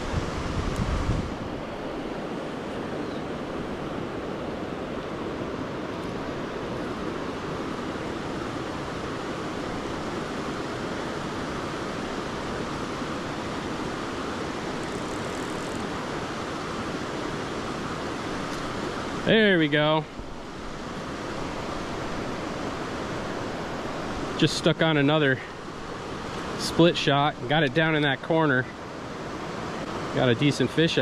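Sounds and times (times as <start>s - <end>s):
rocky stream rushing: 0.0s - 31.0s.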